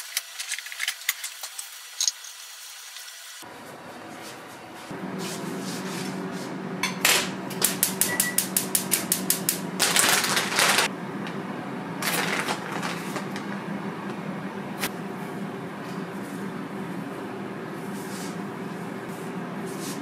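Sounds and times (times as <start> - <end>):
foil bag crinkling: 9.8 - 10.9, 12.0 - 13.6.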